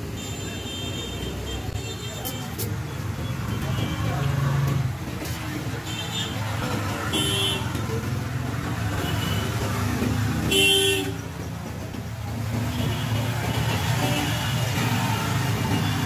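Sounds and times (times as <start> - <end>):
vehicle horns tooting: 7.1 - 7.8, 10.5 - 11.2.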